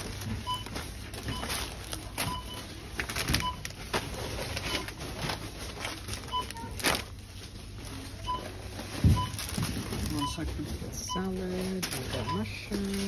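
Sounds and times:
grocery packets rustling: 0.0 - 13.0
barcode scanner beeps: 0.4 - 2.7, 3.4 - 3.7, 6.3 - 6.7, 8.2 - 9.5, 10.1 - 13.0.

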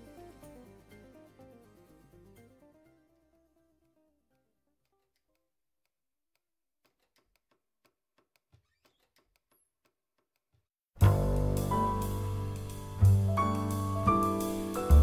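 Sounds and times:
piano and drum music: 11.0 - 15.0.

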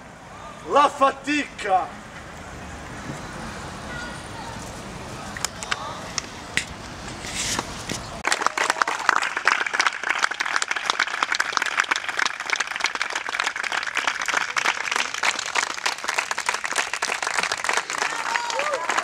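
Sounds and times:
audience applauding: 8.2 - 19.0.

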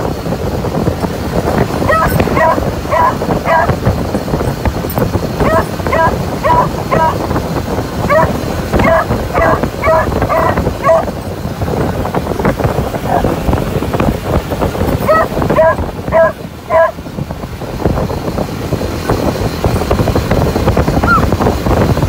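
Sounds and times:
motorcycle moving: 0.0 - 22.0
wind: 0.0 - 22.0
dogs barking excitedly: 1.4 - 17.2, 20.9 - 21.3.

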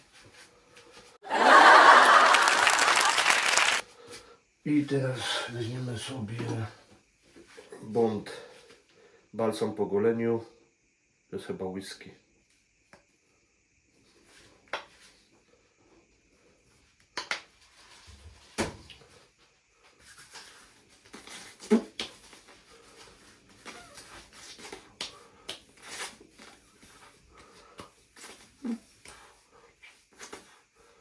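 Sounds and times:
hands rubbing and patting face: 20.1 - 30.6.

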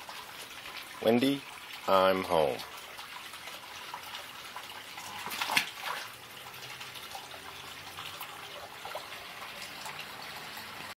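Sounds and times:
fountain water trickling and bubbling: 0.0 - 10.9
turtle splashing into water: 5.0 - 7.3.

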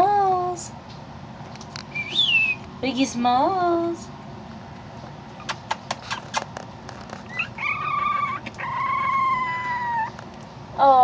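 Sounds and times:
puppy whining: 5.4 - 10.3.

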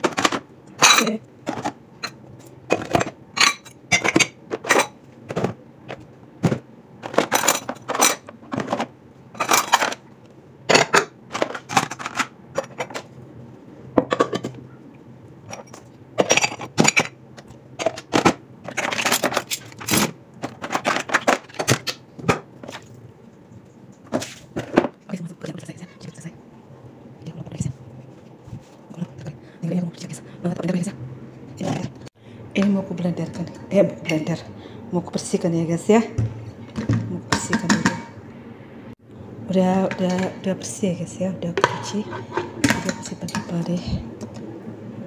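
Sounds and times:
dishes and utensils clattering: 0.0 - 10.0, 10.7 - 13.1, 14.0 - 14.6, 15.5 - 17.2, 17.8 - 22.9, 36.2 - 38.2, 39.9 - 40.5, 41.6 - 44.0.

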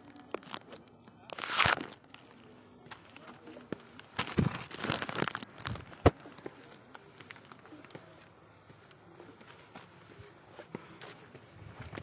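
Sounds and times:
phone microphone being handled: 0.0 - 8.0
footsteps on concrete steps: 6.0 - 12.0.

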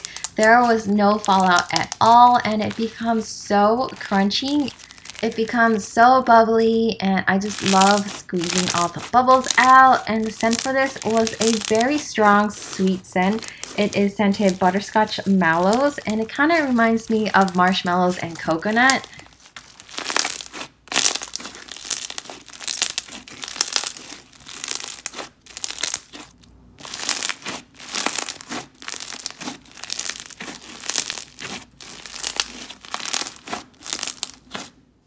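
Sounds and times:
slime crunching and crackling: 0.0 - 34.9.

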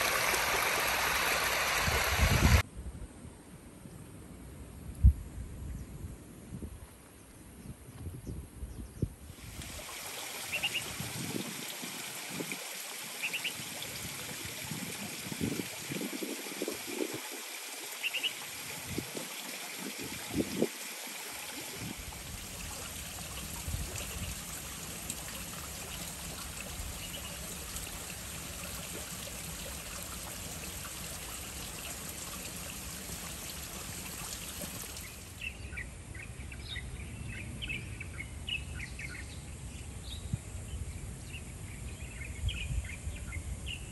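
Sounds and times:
light rain on foliage: 9.4 - 14.4, 16.0 - 35.4.

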